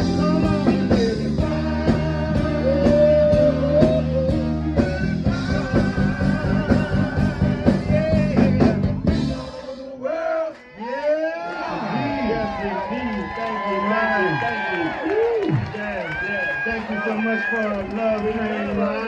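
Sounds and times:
drum beat: 0.0s - 9.4s
bass line: 0.0s - 9.7s
people singing: 0.0s - 11.8s.

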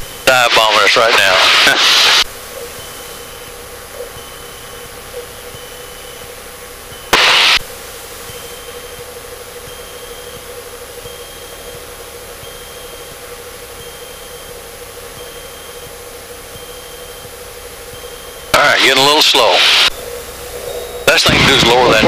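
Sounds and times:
airflow inside cabin: 0.0s - 22.0s
light aircraft engine drone: 0.0s - 22.0s
burst of hiss: 7.1s - 8.4s.

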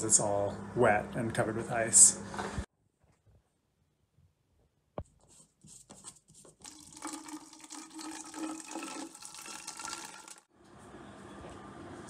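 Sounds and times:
water running: 6.6s - 10.5s.

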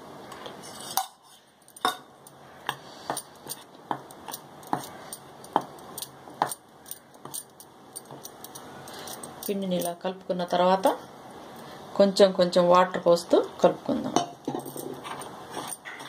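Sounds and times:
soft scraping of flour: 0.5s - 1.6s.

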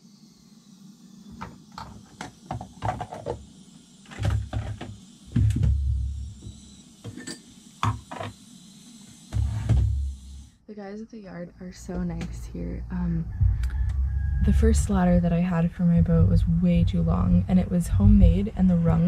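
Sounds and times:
dull low thumps: 5.4s - 6.6s, 11.9s - 19.0s.

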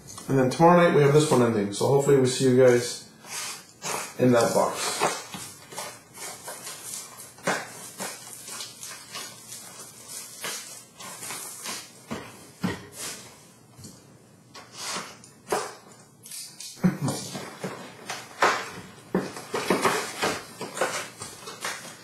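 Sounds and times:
plastic wrap tearing and crinkling: 3.8s - 12.2s, 15.5s - 22.0s.

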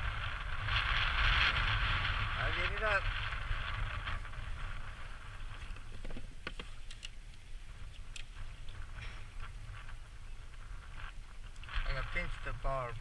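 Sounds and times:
low wind rumble on microphone: 0.0s - 13.0s
handling clicks and rustles: 5.6s - 9.5s.

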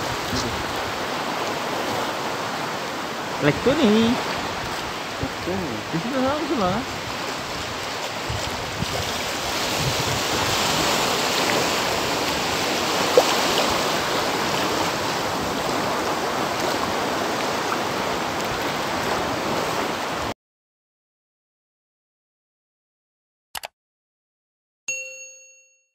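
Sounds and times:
sea waves breaking: 0.0s - 20.3s
wind: 0.0s - 20.4s.

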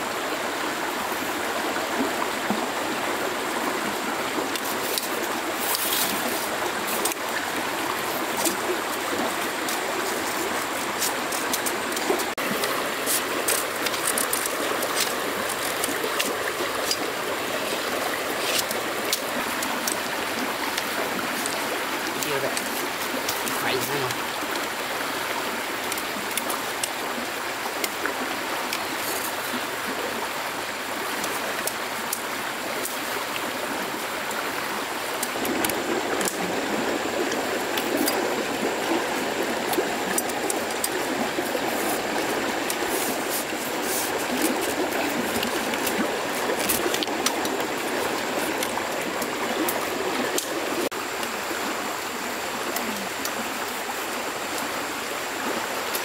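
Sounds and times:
stream water rushing: 0.0s - 56.0s
small ticks: 39.7s - 50.6s.

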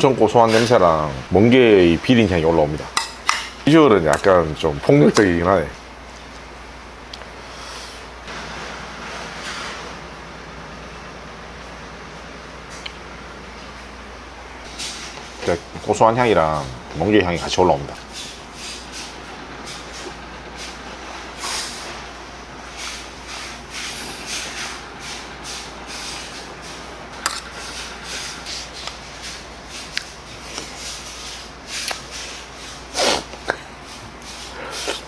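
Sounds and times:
spoon scraping a bowl: 27.2s - 30.0s.

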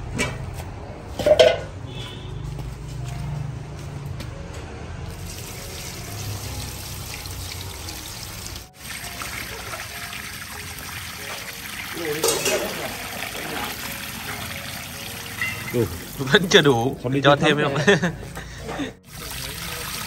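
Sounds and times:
water pouring into a pot: 5.1s - 17.0s, 19.0s - 20.0s.

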